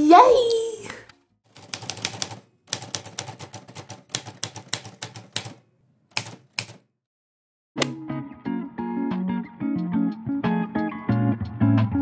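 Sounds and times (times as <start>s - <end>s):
typewriter key clicks: 1.6s - 6.8s.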